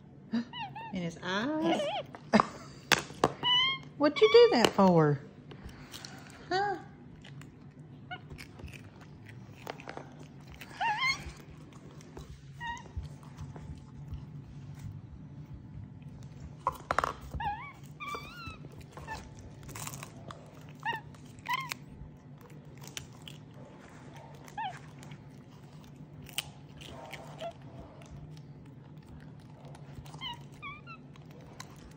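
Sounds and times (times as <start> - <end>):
monkey squeaky chirps: 3.4 - 4.6, 10.8 - 11.4.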